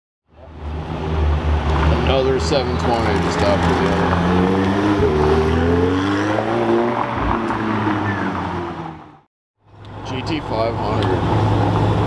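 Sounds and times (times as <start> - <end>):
sports car driving past: 0.5 - 9.2.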